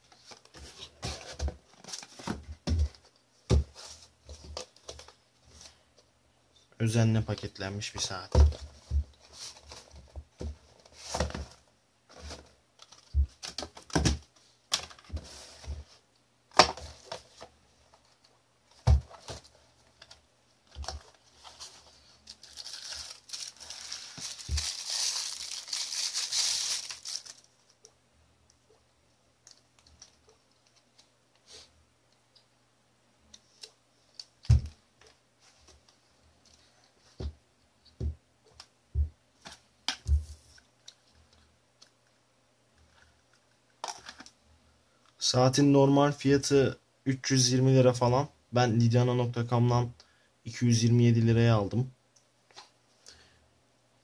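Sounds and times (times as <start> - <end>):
plastic wrapping crinkling: 20.8 - 27.7.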